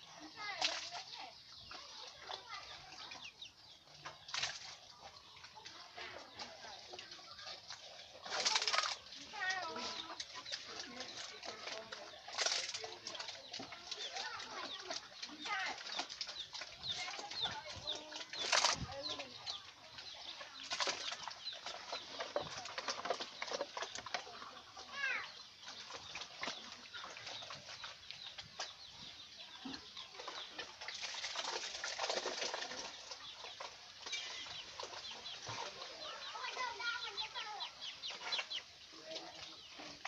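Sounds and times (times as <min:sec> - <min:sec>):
chickens clucking: 0:00.0 - 0:40.0
bird chirps: 0:32.8 - 0:40.0.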